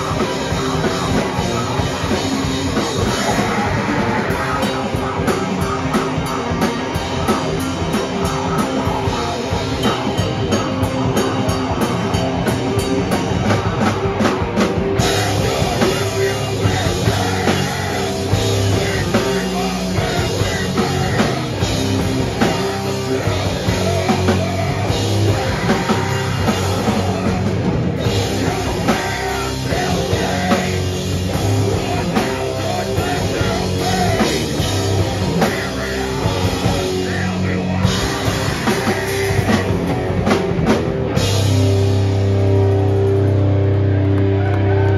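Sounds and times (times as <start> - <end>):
heavy rock band playing: 0.0 - 44.9
fast high beat: 15.0 - 40.0
vocals through pa: 15.0 - 40.0.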